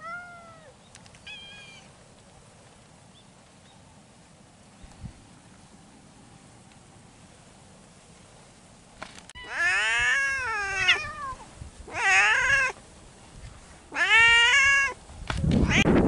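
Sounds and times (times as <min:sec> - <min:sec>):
cat meowing: 0:00.0 - 0:01.9, 0:09.4 - 0:12.8, 0:13.9 - 0:15.0, 0:15.6 - 0:15.9.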